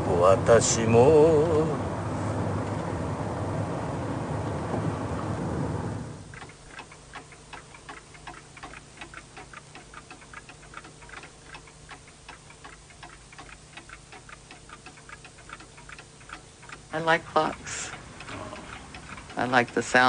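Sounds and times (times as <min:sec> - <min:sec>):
faint steady hum: 0:00.0 - 0:20.0
clocks ticking: 0:06.3 - 0:20.0.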